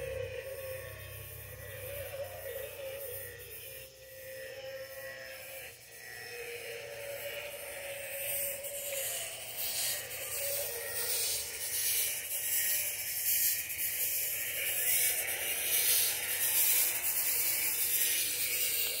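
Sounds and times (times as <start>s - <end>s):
fog machine hissing: 0.0s - 4.0s, 8.5s - 19.0s.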